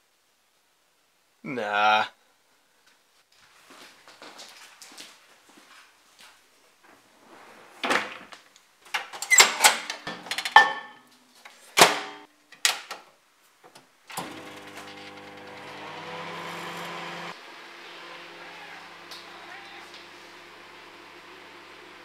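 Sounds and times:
microwave oven humming: 0:14.2 - 0:22.0.

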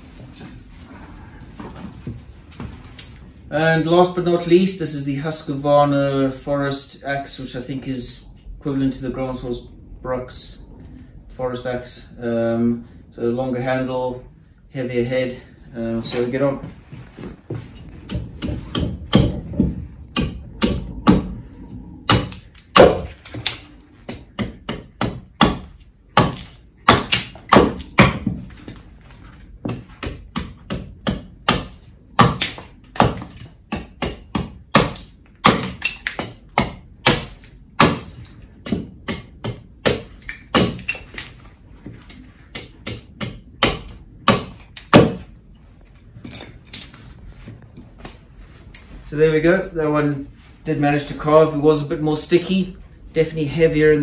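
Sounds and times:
axe chopping wood: 0:20.2 - 0:21.3, 0:22.1 - 0:28.4, 0:29.6 - 0:41.0, 0:42.5 - 0:45.2.

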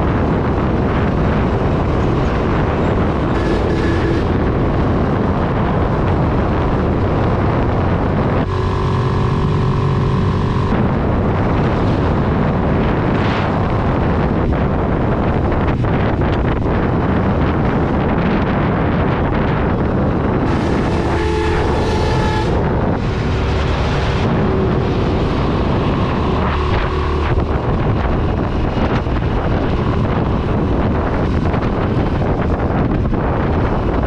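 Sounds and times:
motorcycle engine running: 0:00.0 - 0:34.0
wind rushing over microphone: 0:00.0 - 0:34.0
horn sounding: 0:03.0 - 0:04.8, 0:08.2 - 0:10.8, 0:20.4 - 0:25.4.

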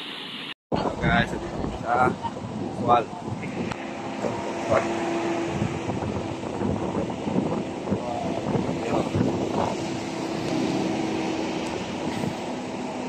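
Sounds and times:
vehicle engine humming: 0:00.0 - 0:13.0
wind buffeting microphone: 0:00.7 - 0:13.0.

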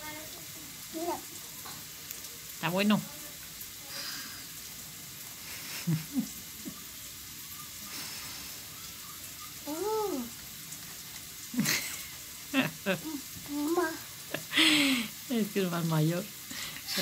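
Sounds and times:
steady hiss: 0:00.0 - 0:17.0
child humming and murmuring: 0:09.6 - 0:10.4, 0:13.0 - 0:14.1.

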